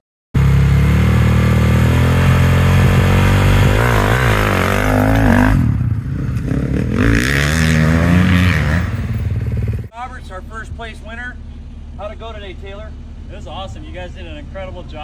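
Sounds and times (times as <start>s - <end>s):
dirt bike engine revving: 0.4s - 9.9s.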